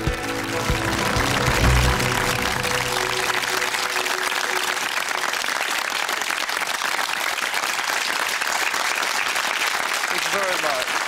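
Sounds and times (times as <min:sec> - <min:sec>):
theme music: 0:00.0 - 0:06.0
audience applauding: 0:00.0 - 0:11.0.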